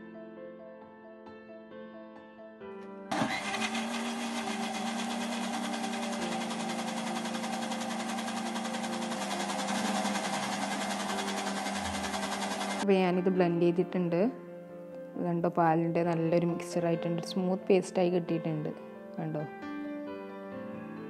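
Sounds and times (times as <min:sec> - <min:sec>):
soft piano music: 0:00.0 - 0:03.4, 0:05.4 - 0:21.0
mixer grinder motor running: 0:03.1 - 0:12.8.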